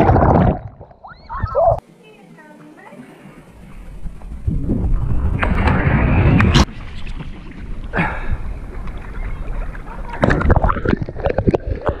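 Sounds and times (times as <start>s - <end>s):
water sloshing: 6.6s - 12.0s.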